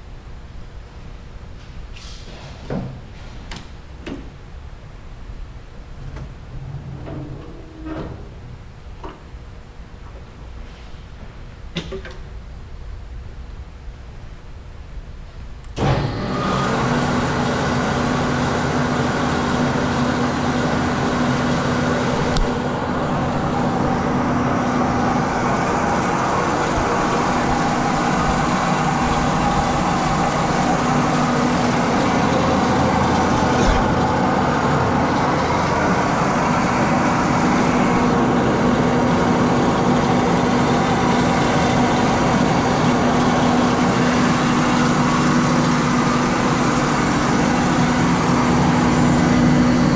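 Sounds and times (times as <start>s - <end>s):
bandsaw running with hum: 15.9s - 49.9s.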